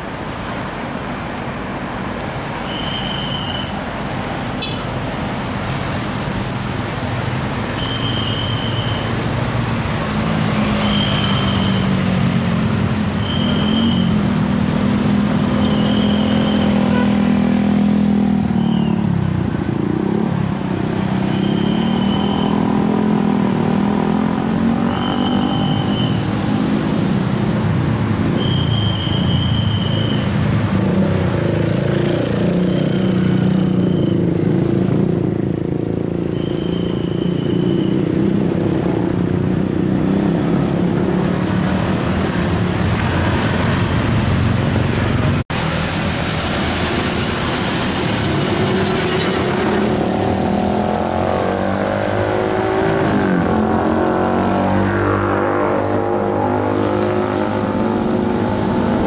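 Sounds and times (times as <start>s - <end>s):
tyres hissing on wet road: 0.0s - 17.7s, 41.2s - 54.8s
car and motorcycle engines: 0.0s - 59.0s.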